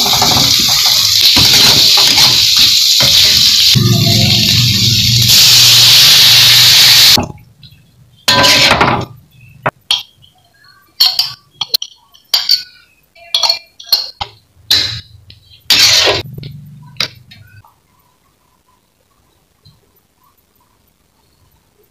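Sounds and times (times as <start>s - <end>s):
water sizzling in hot wok: 0.0s - 7.2s, 15.7s - 16.2s
metal spoon clinking on glass plate: 11.0s - 15.0s.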